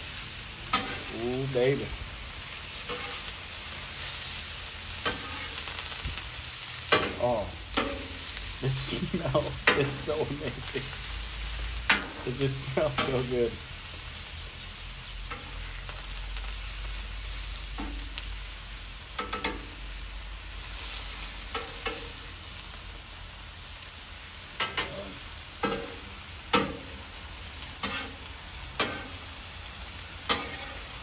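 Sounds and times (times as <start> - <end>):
food sizzling on a griddle: 0.0 - 31.0
metal spatula scraping steel: 0.7 - 1.1, 2.8 - 3.3, 5.0 - 5.6, 27.8 - 28.2, 28.8 - 29.2, 30.2 - 31.0.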